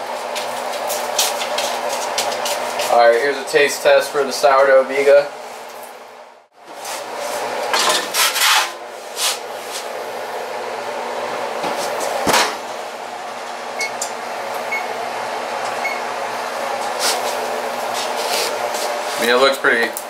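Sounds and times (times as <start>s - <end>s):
steady mechanical hum: 0.0s - 20.0s.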